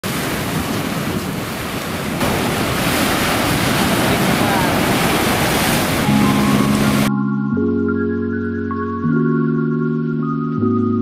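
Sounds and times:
surf breaking on rocks: 0.0s - 7.1s.

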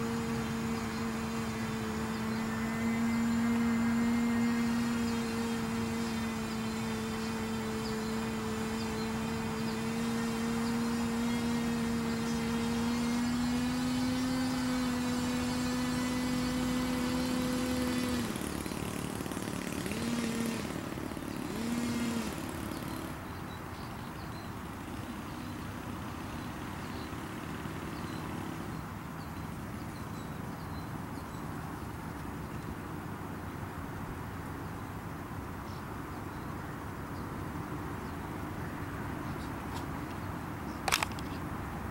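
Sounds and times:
engine revving: 0.0s - 23.3s
vehicle engine running: 0.0s - 30.7s.

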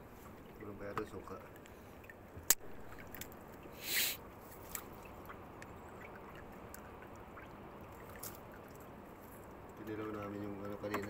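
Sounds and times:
short hiss: 3.8s - 4.2s.

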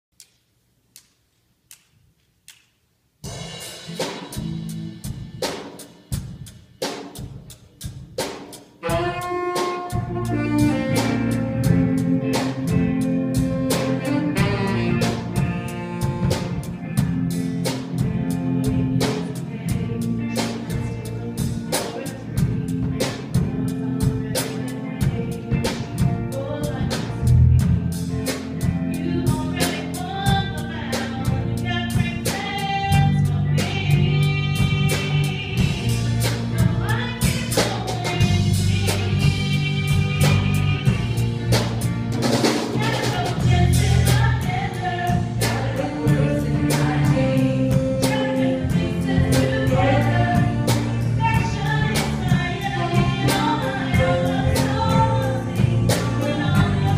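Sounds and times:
faint clicks: 0.2s - 2.7s
drums: 1.0s - 56.9s
band playing instrumental: 3.2s - 56.9s.

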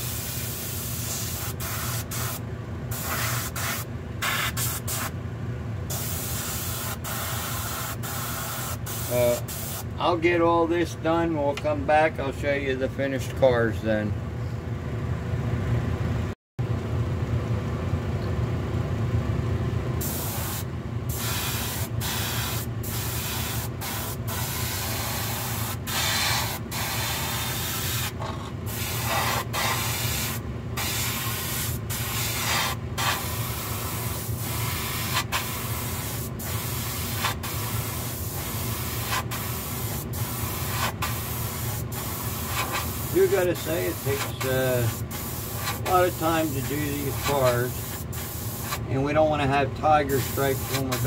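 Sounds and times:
airbrush hissing: 0.0s - 5.1s, 5.9s - 9.9s, 20.0s - 48.8s, 50.1s - 51.0s.

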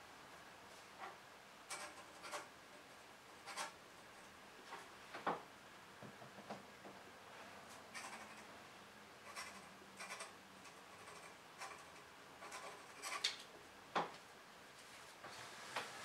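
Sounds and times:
pen scratching on paper: 3.4s - 3.8s, 9.2s - 13.2s.

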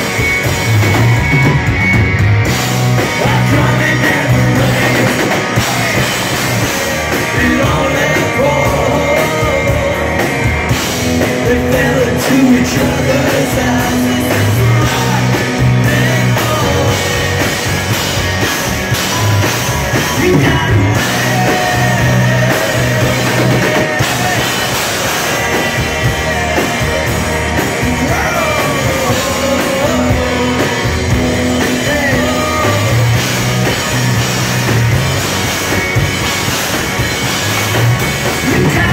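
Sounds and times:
drums: 0.0s - 38.9s
electric guitars: 0.0s - 38.9s
man singing: 3.0s - 10.4s, 11.0s - 18.0s, 19.1s - 33.4s, 38.4s - 38.9s.

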